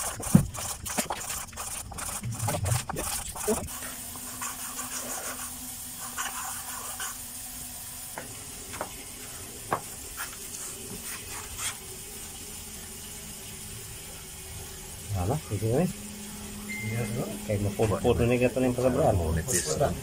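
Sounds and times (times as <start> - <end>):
rag rubbing metal part: 0.0 - 5.4.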